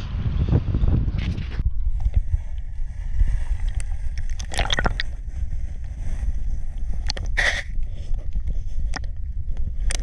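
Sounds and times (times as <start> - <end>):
crackles and clicks: 3.4 - 10.0
muffled underwater water surging: 3.5 - 5.1.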